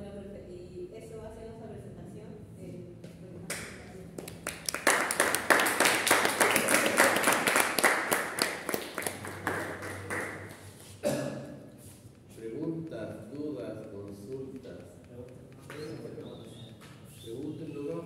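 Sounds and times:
audience applauding: 4.2 - 10.7.

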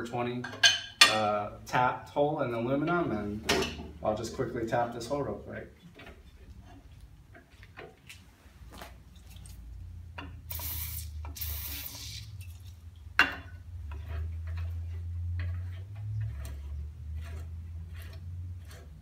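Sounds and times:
aerosol spray hissing: 10.5 - 12.3.

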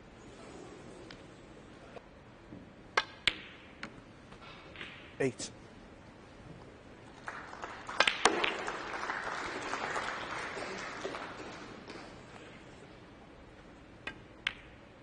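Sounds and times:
audience applause: 7.1 - 12.2
snooker balls clicking: 8.0 - 8.8, 13.5 - 15.0.

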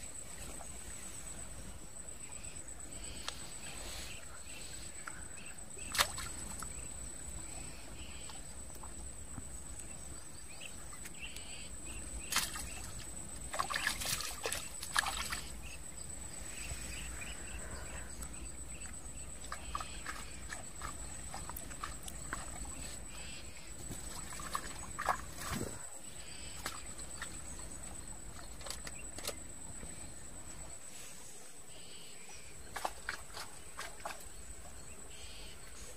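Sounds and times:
water splashes: 5.8 - 6.8, 12.2 - 15.8, 19.4 - 25.9.

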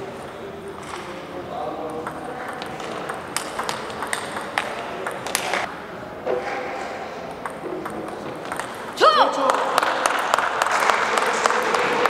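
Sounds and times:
table tennis ball clicks: 1.9 - 5.7, 7.4 - 9.0.

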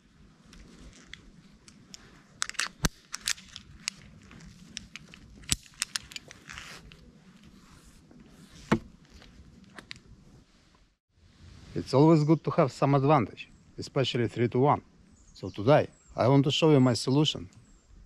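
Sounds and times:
rope and gloves rustling: 0.1 - 10.6
metal hardware clicks and rattles: 2.4 - 6.4.

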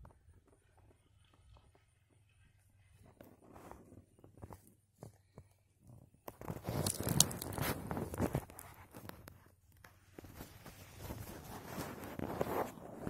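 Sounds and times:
crunching of forest-floor litter: 6.3 - 13.0.

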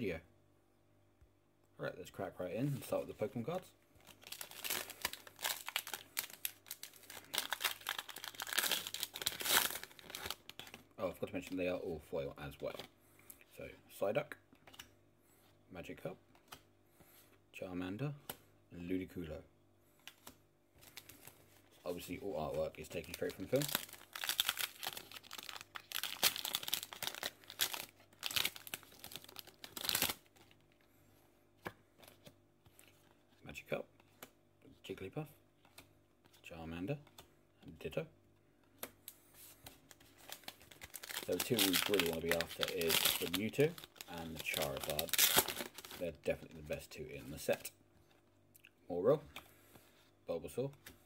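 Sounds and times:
foil wrapper crinkling and tearing: 4.0 - 10.8, 22.8 - 30.5, 40.1 - 46.1.

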